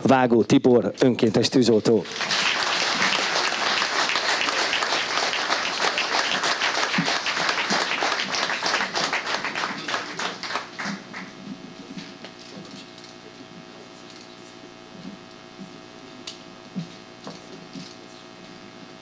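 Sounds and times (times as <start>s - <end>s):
audience applauding: 2.0s - 11.5s.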